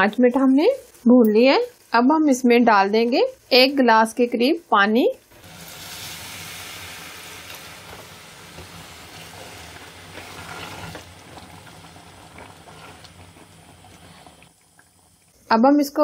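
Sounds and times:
spatula stirring a pot: 5.4 - 15.4
water pouring into a pot: 5.4 - 15.4.

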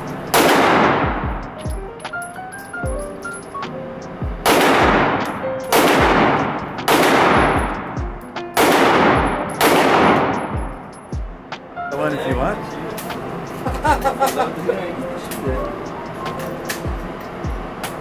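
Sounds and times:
handgun shots echoing indoors: 0.3 - 1.1, 4.4 - 11.1.

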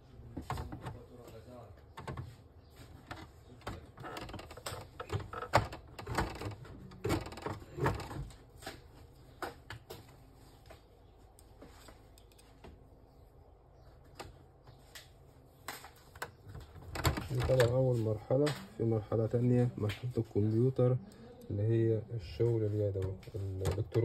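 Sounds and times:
plastic parts clicking and knocking: 1.9 - 2.3, 3.0 - 8.4, 15.7 - 17.8, 23.0 - 24.0.

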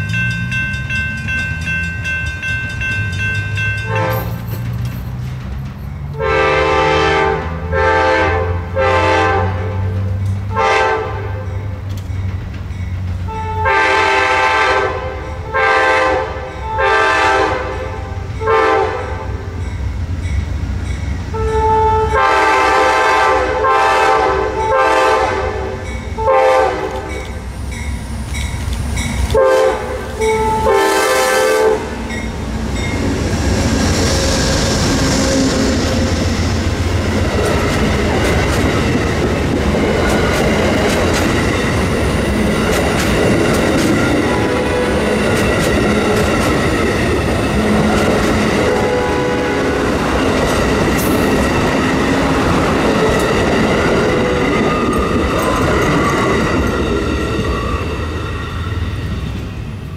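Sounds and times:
train rushing past on rails: 0.0 - 59.9
train air horn blasts: 3.8 - 4.4, 6.1 - 11.5, 13.3 - 19.5, 21.3 - 27.2, 29.3 - 32.1, 48.5 - 50.0
locomotive engine rumble: 25.7 - 59.9.

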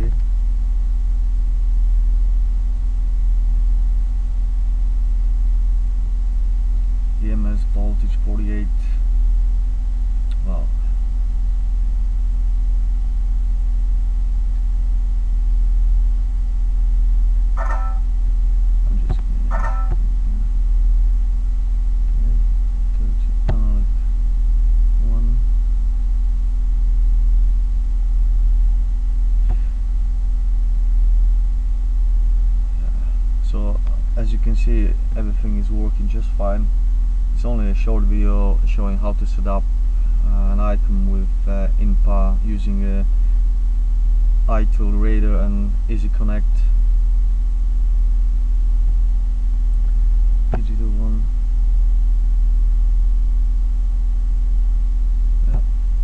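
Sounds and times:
low electrical hum: 0.0 - 56.0.

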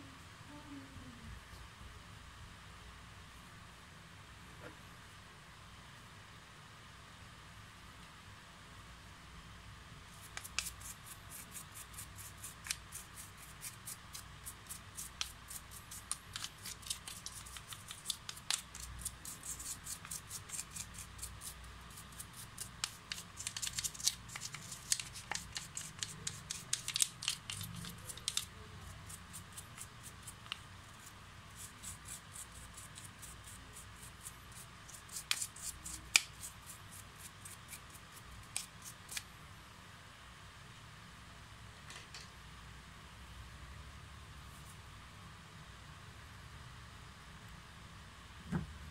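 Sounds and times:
stiff brush scrubbing plastic: 10.1 - 39.3.

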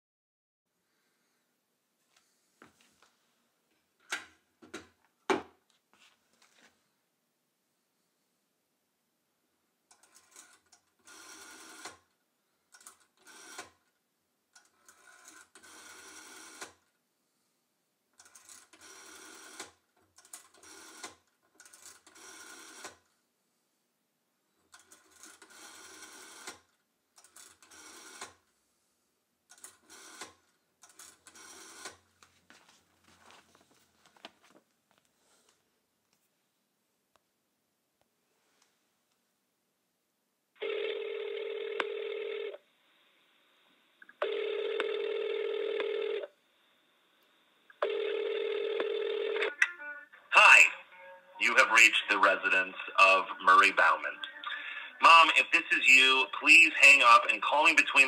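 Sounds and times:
rotary telephone dial turning: 9.9 - 12.0, 12.8 - 13.8, 14.6 - 16.8, 18.2 - 23.0, 24.8 - 26.6, 27.2 - 28.4, 29.5 - 32.0.

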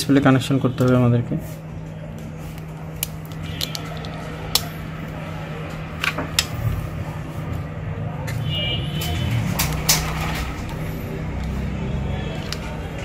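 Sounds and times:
steady low hum: 1.2 - 8.3
clicks and taps of phone parts: 3.0 - 4.7.

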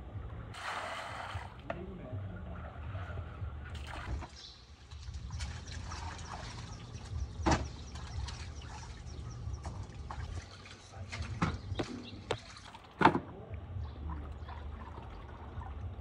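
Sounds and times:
water splashing in metal basins: 3.7 - 16.0.

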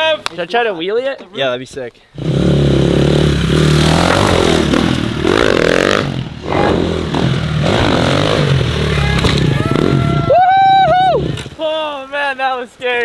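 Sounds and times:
dirt bike engine revving: 2.2 - 11.6.

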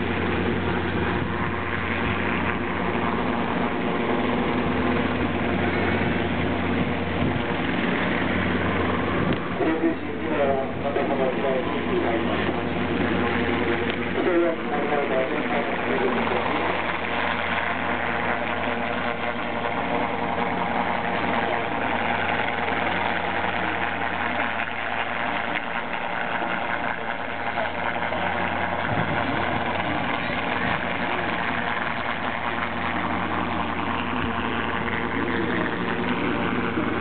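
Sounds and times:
engine droning: 0.0 - 37.0.

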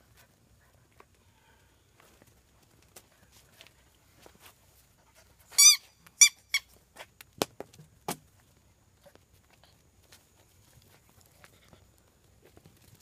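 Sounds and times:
squeaky toy ball squeaking: 5.6 - 6.7.

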